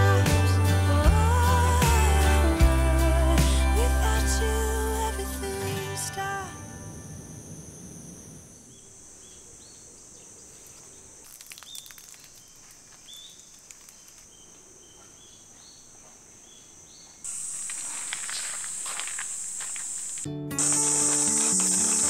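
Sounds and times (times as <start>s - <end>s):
high insect drone: 0.0s - 22.0s
bird calling: 17.0s - 22.0s.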